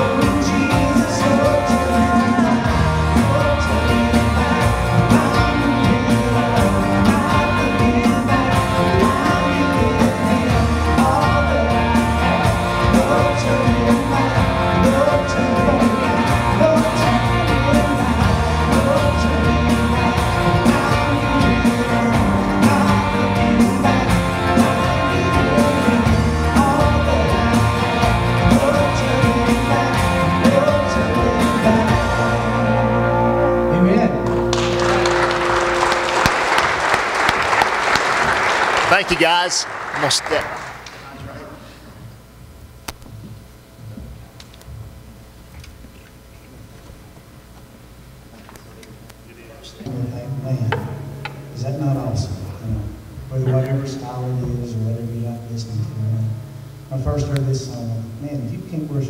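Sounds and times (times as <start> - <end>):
man singing: 0.0 - 32.9
rock band playing: 0.0 - 40.4, 50.7 - 52.2.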